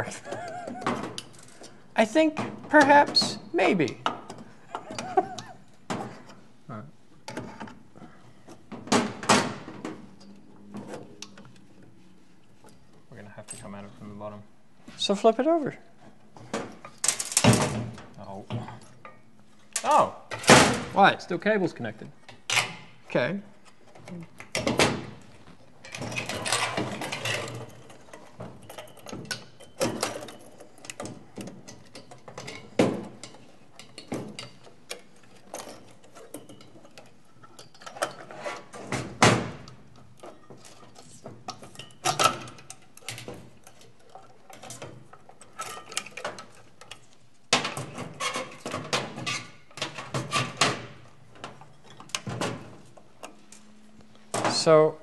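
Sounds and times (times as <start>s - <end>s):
small parts and tools clinking: 25.8s - 38.4s, 39.9s - 53.7s.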